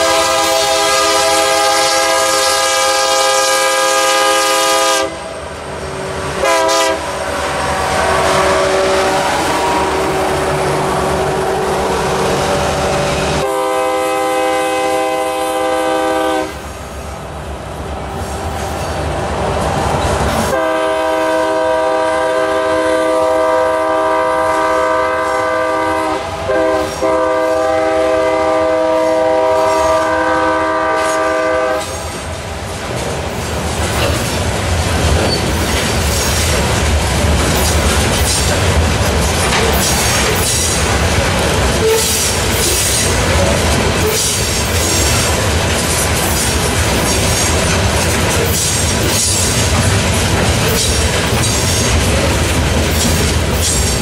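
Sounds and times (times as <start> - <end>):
train air horn blasts: 0.0 - 5.4, 6.1 - 16.9, 20.4 - 32.2, 41.8 - 43.2
freight cars rumbling and clattering: 31.9 - 54.0.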